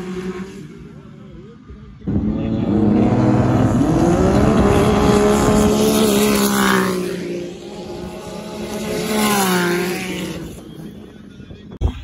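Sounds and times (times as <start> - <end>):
snowmobile engines at full throttle: 0.0 - 11.7.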